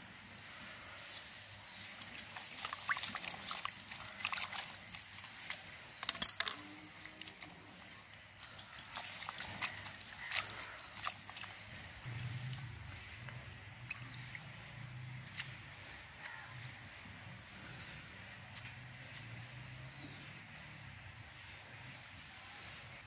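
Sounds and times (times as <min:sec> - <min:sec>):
water sloshing and splashing in bowl: 0:01.7 - 0:21.0.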